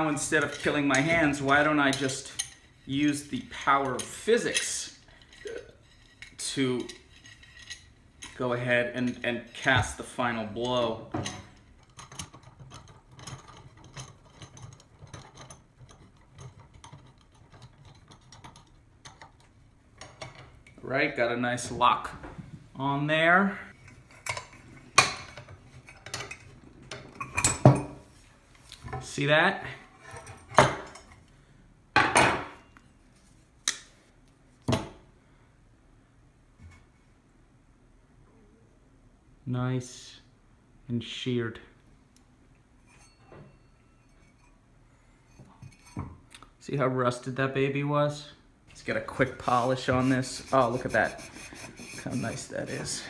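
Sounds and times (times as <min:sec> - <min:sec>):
metal tools clanking: 0:00.0 - 0:19.3.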